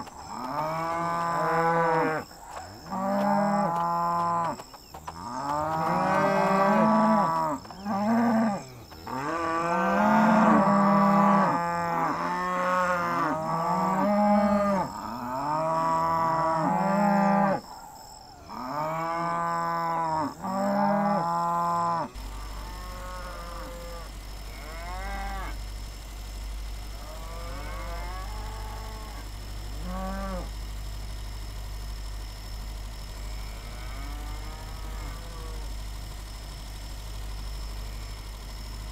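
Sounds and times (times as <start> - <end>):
cattle mooing: 0.2 - 17.6, 18.5 - 25.6, 27.0 - 30.6, 33.3 - 35.6.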